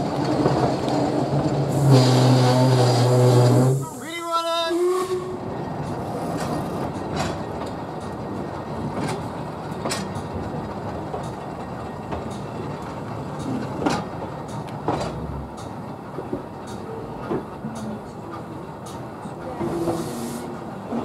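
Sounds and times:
train rolling rumble: 0.0s - 21.0s
wheels clicking over rail joints: 5.8s - 20.0s.

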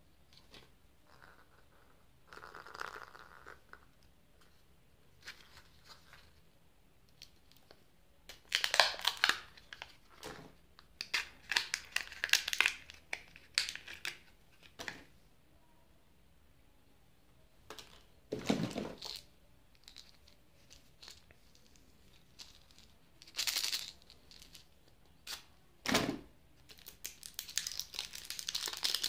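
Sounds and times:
wrapper crinkling and tearing: 8.3s - 10.0s, 11.0s - 14.2s, 26.7s - 29.0s.

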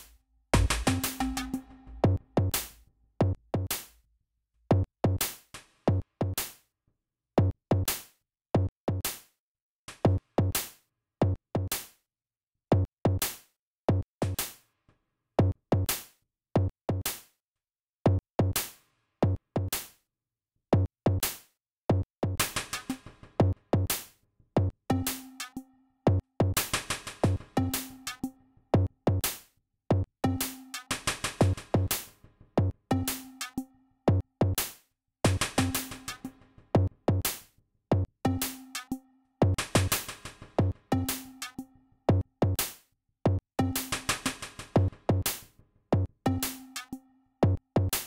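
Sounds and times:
electronic drum machine beat: 0.6s - 2.6s, 35.3s - 37.2s.

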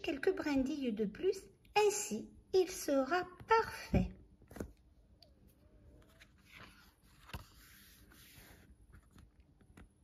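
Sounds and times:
paper page turning: 6.0s - 10.0s.

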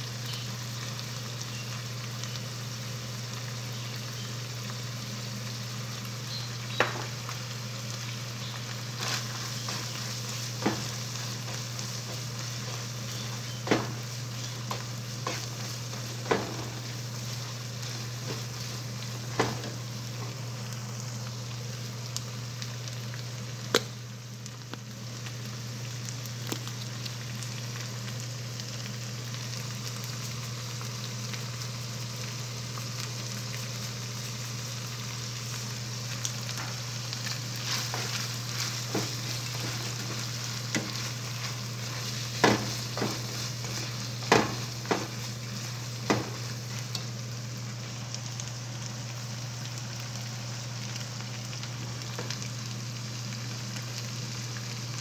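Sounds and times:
meat sizzling in a frying pan: 0.0s - 55.0s
spatula scraping and knocking pan: 9.0s - 17.0s, 37.6s - 45.3s, 46.0s - 46.5s.

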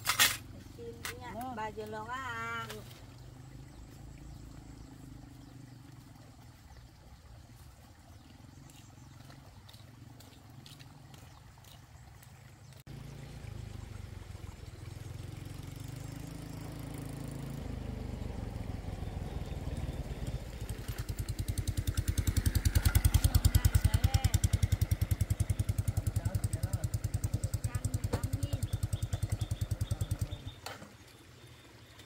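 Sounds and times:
small motorcycle engine: 2.0s - 6.2s, 12.6s - 30.9s.

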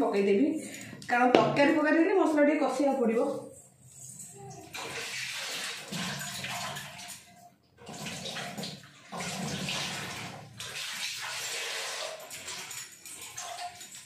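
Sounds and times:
kitchen tap running: 4.5s - 14.0s
water splashing in steel bowl: 4.6s - 14.0s.

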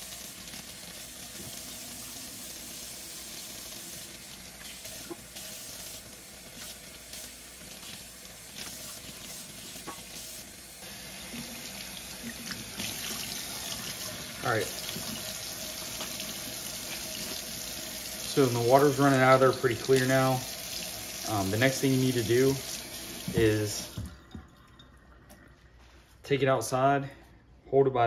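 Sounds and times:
faucet running into steel sink: 0.0s - 25.6s.

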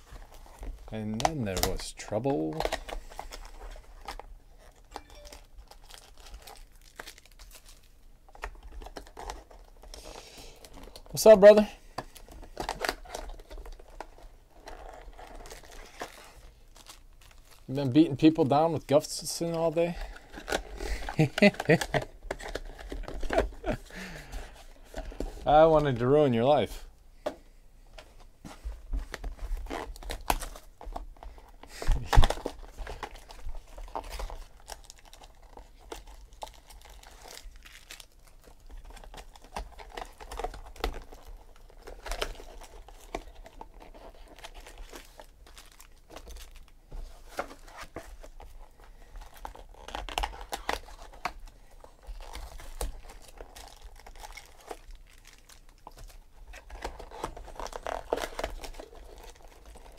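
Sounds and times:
plastic shrink-wrap tearing: 2.5s - 11.6s, 20.3s - 23.8s, 31.9s - 46.8s, 47.6s - 59.9s.

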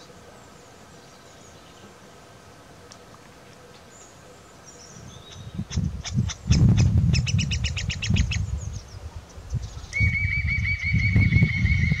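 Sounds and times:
bird chirping and trilling: 4.0s - 12.0s.

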